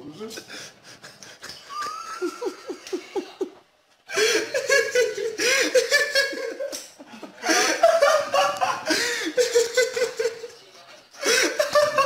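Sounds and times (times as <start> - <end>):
person laughing: 0.9 - 10.5.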